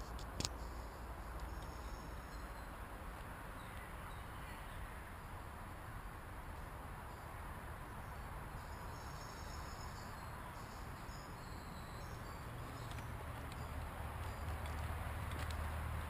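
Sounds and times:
insects chirping: 0.6s - 2.8s, 8.0s - 15.0s.

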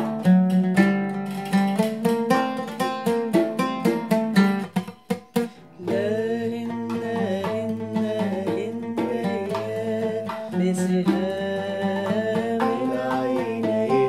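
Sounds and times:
plucked oud: 0.0s - 14.0s
man singing: 5.8s - 14.0s
woman singing: 5.8s - 14.0s.

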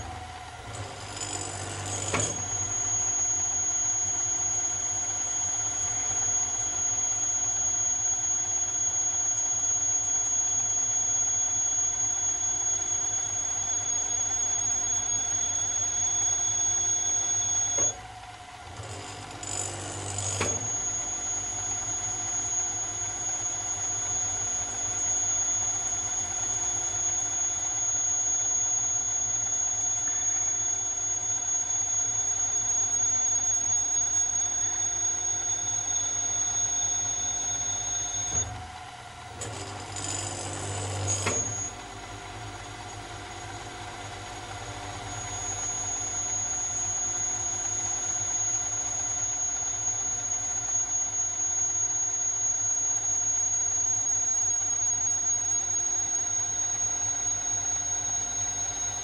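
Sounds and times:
milling machine whining: 0.0s - 59.0s
click: 0.7s - 8.2s, 16.4s - 21.0s, 34.4s - 38.7s, 39.4s - 41.8s.

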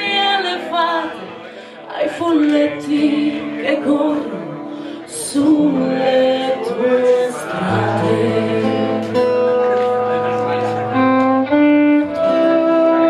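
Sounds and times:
acoustic guitar: 0.0s - 13.0s
violin: 0.0s - 13.0s
voices singing held notes: 2.0s - 9.2s.

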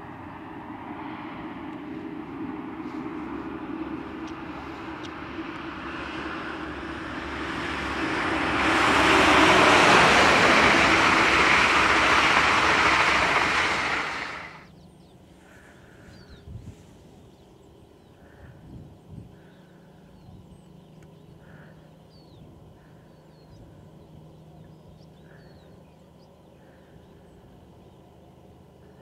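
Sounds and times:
diesel locomotive engine drone: 0.0s - 29.0s
train wheels on rail: 4.2s - 14.6s.

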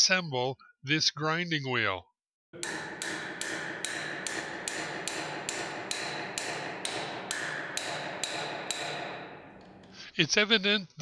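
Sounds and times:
hammer striking steel wrench: 2.6s - 10.0s.

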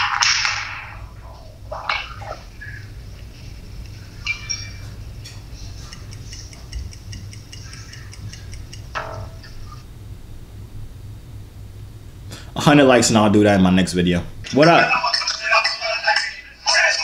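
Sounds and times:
steady low hum: 0.0s - 17.0s
countdown timer ticking quickly: 5.9s - 9.0s.

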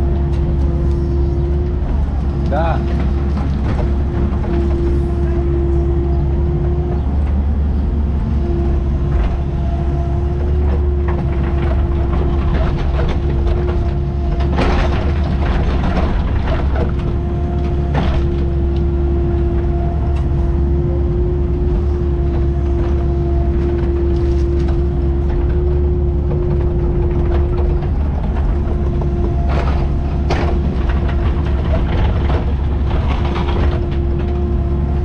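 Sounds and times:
diesel engine running: 0.0s - 35.0s.

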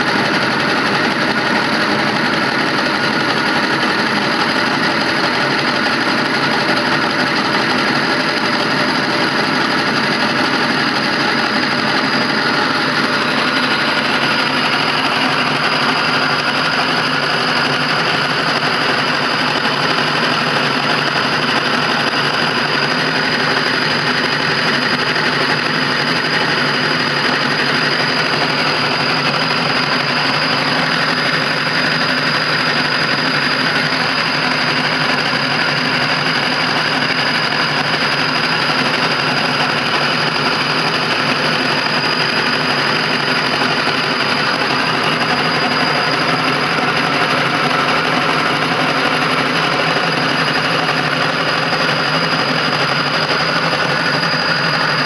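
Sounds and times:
generator rig running: 0.0s - 55.0s
high whine: 0.0s - 55.0s.

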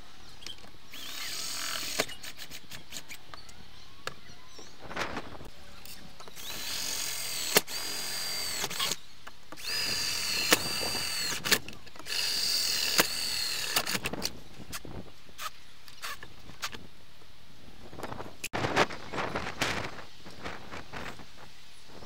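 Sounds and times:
cordless drill whining: 0.4s - 3.5s, 6.3s - 14.3s.

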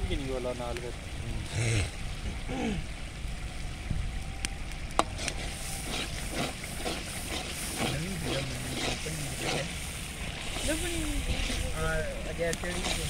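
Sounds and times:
wood fire rumbling and crackling: 0.0s - 13.0s
metal ladle scraping pot: 5.1s - 11.8s
food sizzling: 5.1s - 13.0s.

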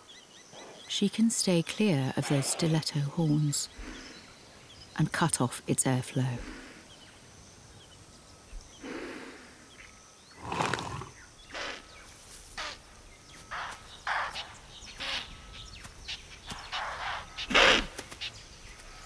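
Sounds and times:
animal rasps and grunts: 0.5s - 0.9s, 1.8s - 4.2s, 10.4s - 12.0s, 16.0s - 19.0s.

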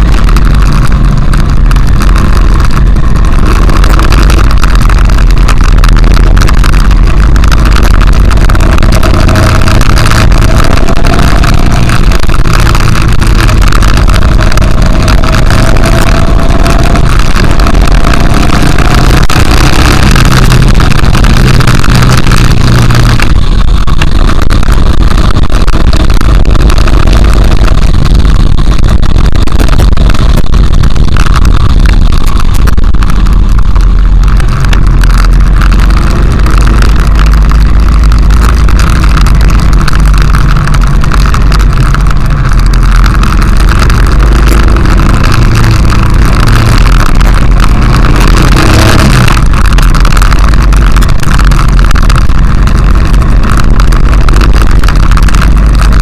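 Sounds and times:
motorcycle engine running: 0.0s - 56.0s
wind rumble on microphone: 0.0s - 56.0s.

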